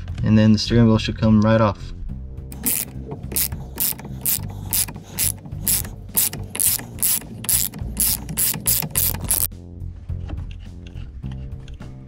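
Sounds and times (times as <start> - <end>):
hand ratchet clicking: 2.5 - 9.5.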